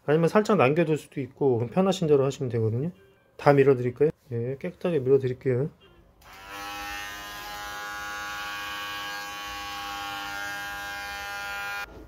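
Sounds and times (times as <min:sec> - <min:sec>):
electric hair clipper buzzing: 0:06.2 - 0:11.9.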